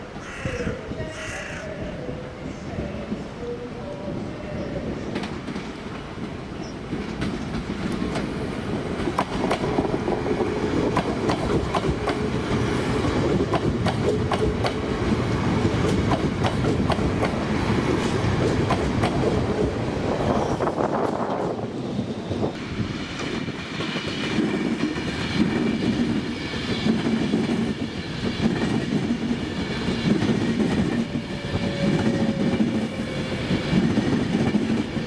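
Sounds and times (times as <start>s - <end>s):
train rumbling past: 0.0s - 35.0s
train wheels clicking over rail joints: 5.1s - 19.4s.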